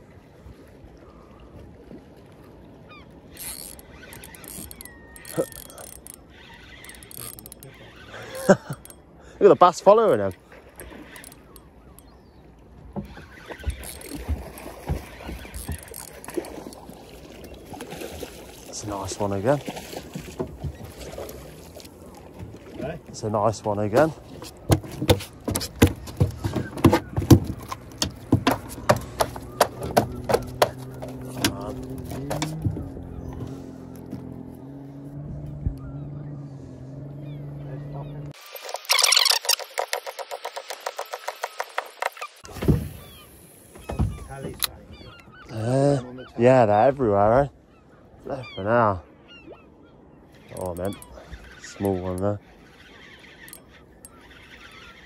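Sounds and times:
fishing reel whirring: 3.2 - 12.1, 13.2 - 17.0, 50.3 - 55.0
fish flapping on deck: 24.4 - 34.3.

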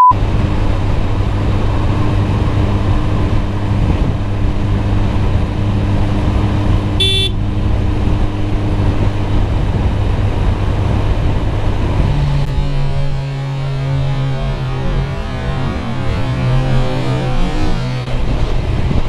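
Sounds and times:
wind rush on microphone: 0.2 - 13.2, 18.1 - 19.0
short horn toot: 7.0 - 7.4.

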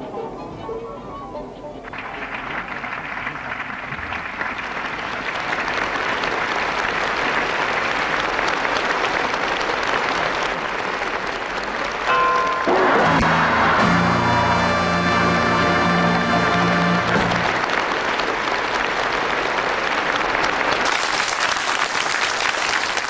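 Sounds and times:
audience applause: 1.8 - 23.0
music: 12.8 - 17.6.

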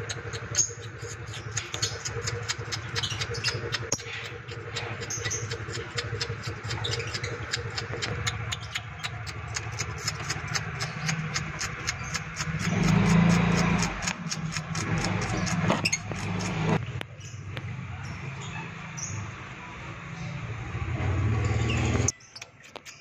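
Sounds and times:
engine idling: 0.0 - 16.8
parrots chirping: 0.0 - 19.3.

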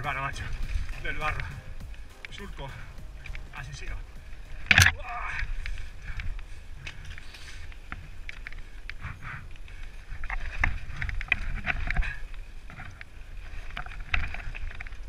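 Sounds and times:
bike clicks and knocks: 5.6 - 15.0.

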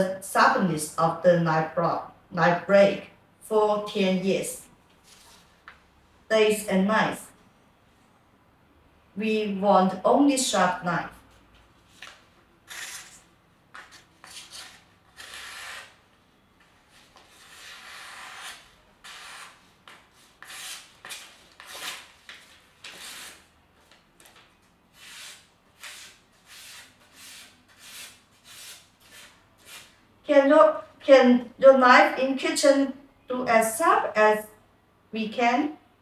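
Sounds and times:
paper rustling: 11.6 - 14.8, 19.4 - 29.8
knife rasping through paper: 12.7 - 13.2, 13.8 - 16.0, 17.2 - 22.1, 22.8 - 23.5, 25.0 - 29.9.

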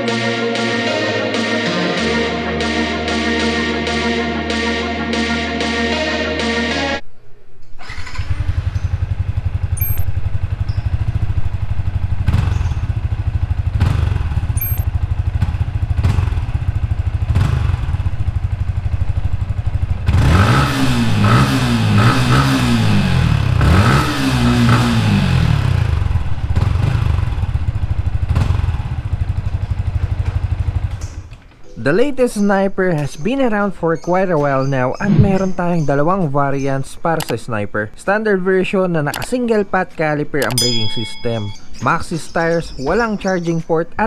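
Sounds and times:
motorcycle engine idling and revving: 8.0 - 31.6.

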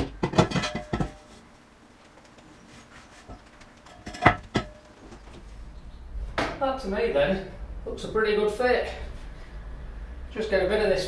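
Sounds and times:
metal-on-metal clanks with ring: 0.3 - 1.3.

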